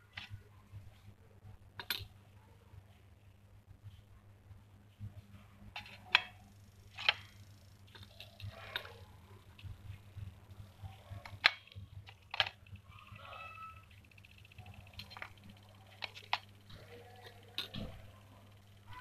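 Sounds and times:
steady low hum: 0:00.0 - 0:19.0
clay pots clicking on steel: 0:14.9 - 0:17.9.

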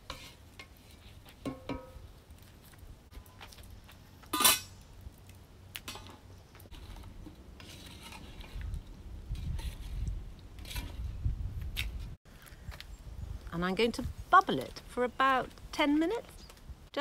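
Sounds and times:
wooden spoon stirring in metal pot: 0:00.0 - 0:02.0.

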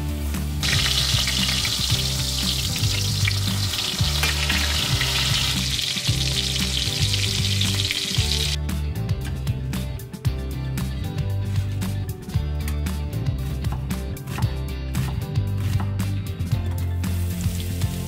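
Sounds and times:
meat frying in hot oil: 0:00.0 - 0:08.6, 0:17.0 - 0:18.0
background music: 0:00.0 - 0:18.0.

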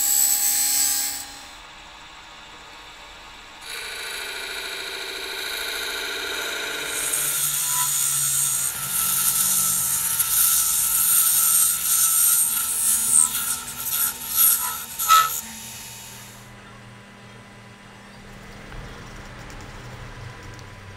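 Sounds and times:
buzzing tone of dividers scoring wood: 0:03.7 - 0:16.4
chisel scraping spinning wood: 0:06.4 - 0:16.4.

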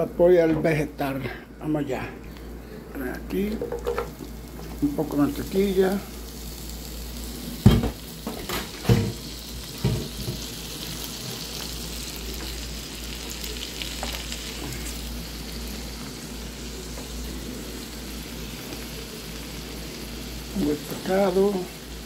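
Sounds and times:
vegetables sizzling in pan: 0:03.3 - 0:22.0
vegetables knocking into pan: 0:03.6 - 0:04.2, 0:07.6 - 0:10.5.

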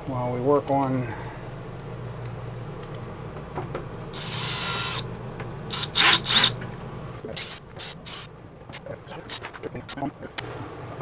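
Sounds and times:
steady low hum: 0:00.0 - 0:11.0
cordless drill driving screw: 0:04.2 - 0:05.0, 0:05.7 - 0:06.6.

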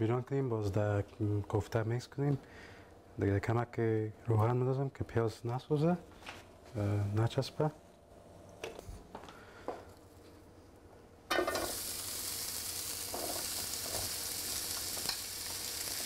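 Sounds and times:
onion sizzling in hot oil: 0:11.3 - 0:16.0.

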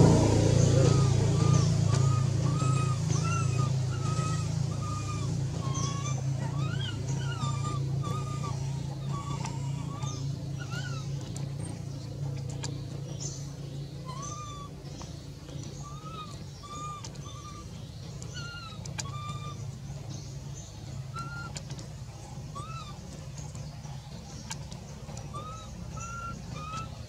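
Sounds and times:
steady low hum: 0:00.0 - 0:27.0
infant monkey squeaky coo calls: 0:00.7 - 0:11.1, 0:14.1 - 0:14.8, 0:15.8 - 0:19.6, 0:21.1 - 0:21.6, 0:22.5 - 0:23.0, 0:25.3 - 0:27.0.

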